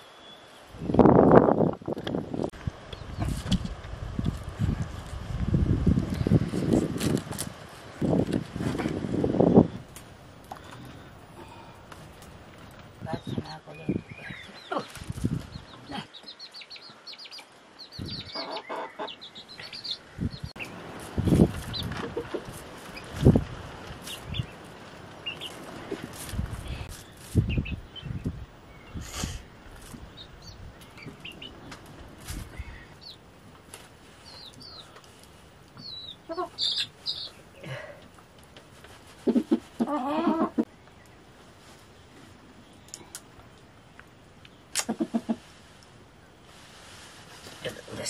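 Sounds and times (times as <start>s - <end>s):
chicks peeping: 12.6s - 33.2s, 34.1s - 37.6s
hen clucking: 18.0s - 20.0s, 21.7s - 23.1s, 35.8s - 37.4s, 39.2s - 40.7s, 44.8s - 45.5s.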